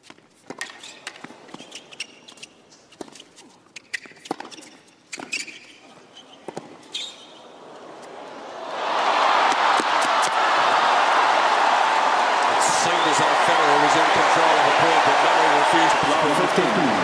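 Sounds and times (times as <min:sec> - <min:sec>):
sneaker squeaks: 0:00.0 - 0:07.5
crowd noise: 0:06.0 - 0:17.0.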